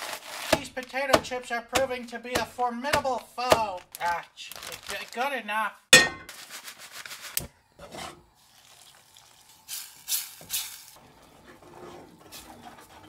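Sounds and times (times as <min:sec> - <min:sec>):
foil bag crinkling: 0:00.0 - 0:01.0, 0:03.0 - 0:05.4, 0:06.3 - 0:07.4
fork scraping in a pan: 0:07.8 - 0:08.3, 0:11.4 - 0:13.0.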